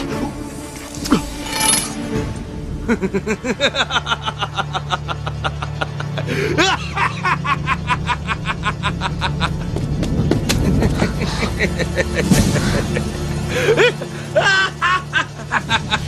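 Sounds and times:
low background music: 0.0 - 16.0
man laughing loudly: 2.8 - 9.8, 10.6 - 16.0.

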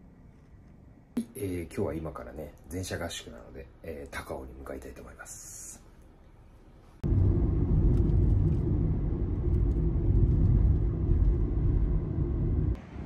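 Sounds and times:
car road and engine rumble: 7.0 - 13.0.

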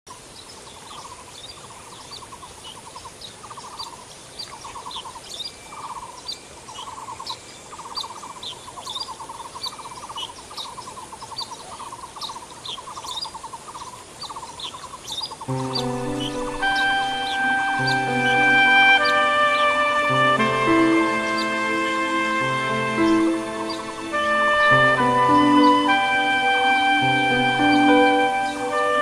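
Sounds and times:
bird trilled call: 2.1 - 29.0
high bird chirps: 14.2 - 26.2
music: 15.5 - 29.0.

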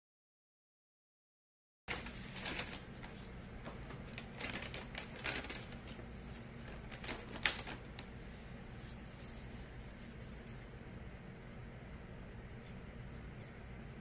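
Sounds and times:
low steady hum: 1.9 - 14.0.

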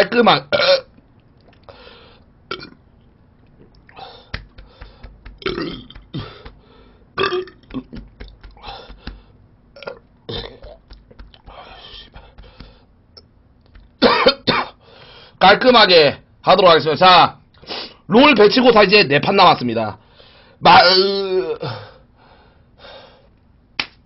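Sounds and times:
man burping: 0.5 - 0.9, 2.5 - 2.8, 5.4 - 6.5, 7.2 - 8.4, 9.8 - 10.8.

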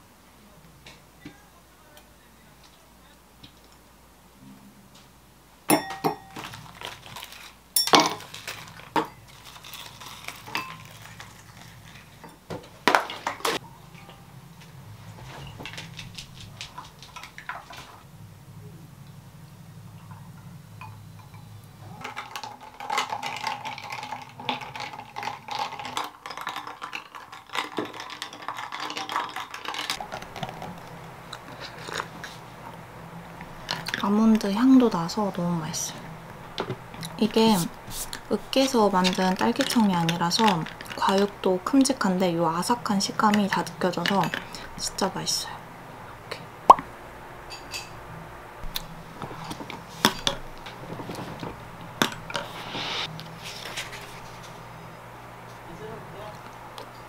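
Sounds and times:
spoon clinking against glass: 5.7 - 6.5, 7.8 - 8.2.

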